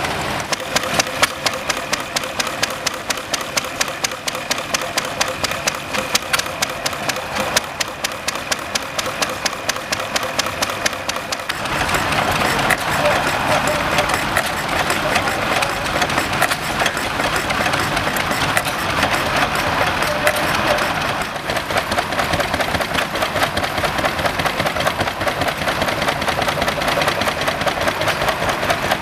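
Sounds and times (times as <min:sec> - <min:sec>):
louder hissy engine: 0:00.0 - 0:29.0
small engine ticking steadily: 0:00.0 - 0:29.0.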